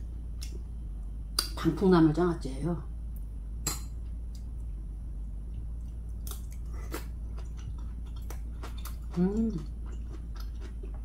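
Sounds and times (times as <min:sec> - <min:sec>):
person chewing: 0:05.5 - 0:11.0.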